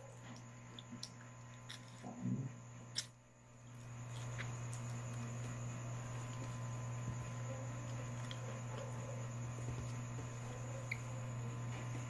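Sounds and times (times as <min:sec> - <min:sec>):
steady low hum: 0:00.0 - 0:12.0
chewing: 0:07.8 - 0:09.0.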